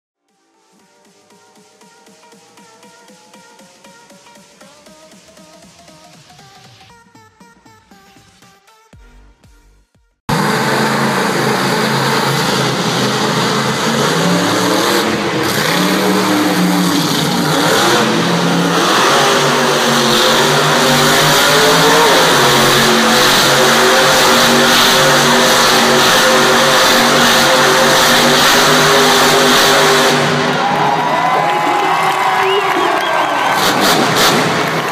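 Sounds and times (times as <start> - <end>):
truck engine revving hard: 10.3 - 34.9.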